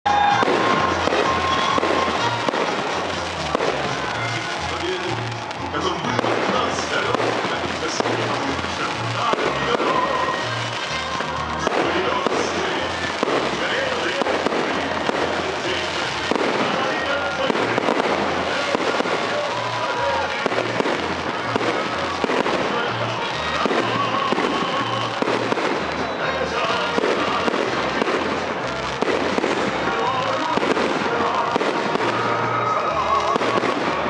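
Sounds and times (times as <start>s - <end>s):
fireworks crackling and popping: 0.1s - 34.0s.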